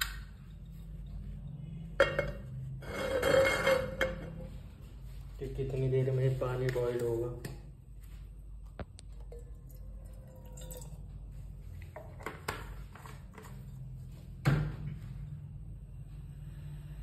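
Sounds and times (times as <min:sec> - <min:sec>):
water pouring into metal saucepan: 0:09.4 - 0:11.0.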